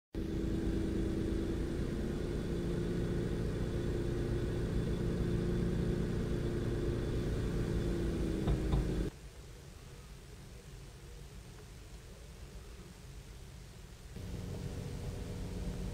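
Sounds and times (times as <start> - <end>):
diesel engine idling: 0.2 - 9.1, 14.2 - 15.9
faint hiss: 0.2 - 15.9.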